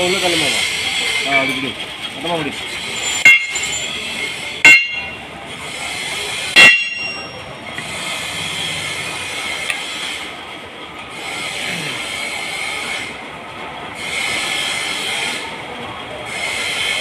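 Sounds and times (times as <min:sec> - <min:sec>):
workshop machinery din: 0:00.0 - 0:17.0
metal-on-metal strikes: 0:03.0 - 0:03.9, 0:04.6 - 0:05.2, 0:06.6 - 0:07.4.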